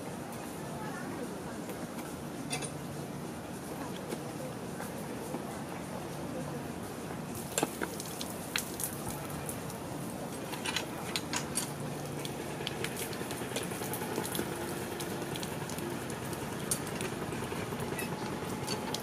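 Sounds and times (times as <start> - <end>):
water splashing on tiles: 7.3 - 19.0.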